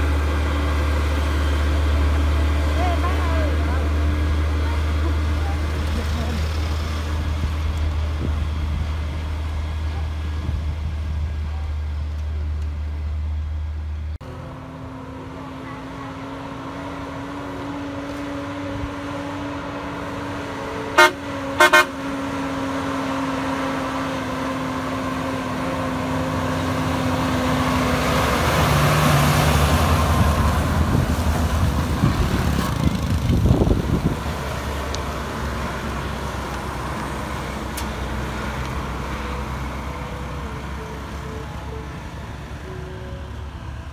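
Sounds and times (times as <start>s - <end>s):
heavy truck engine and tyres: 0.0s - 43.9s
truck diesel engines running: 0.0s - 43.9s
truck horn blasts: 20.9s - 22.2s.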